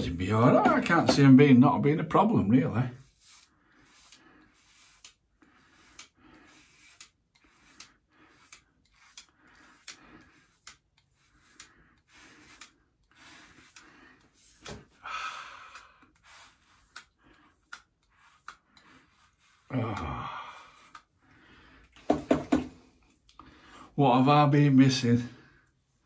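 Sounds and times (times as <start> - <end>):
razor scraping stubble: 0.3 - 15.0, 16.0 - 21.2.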